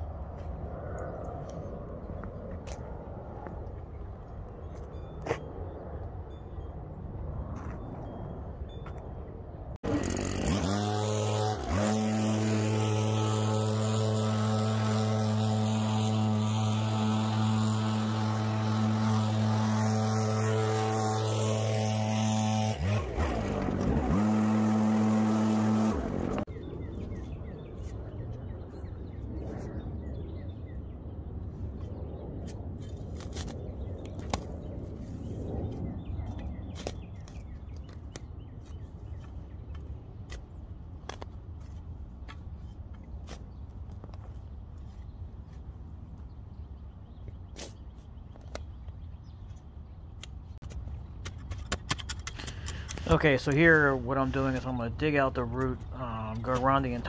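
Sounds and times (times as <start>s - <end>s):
chainsaw engine running: 9.8s - 26.5s, 52.1s - 53.6s.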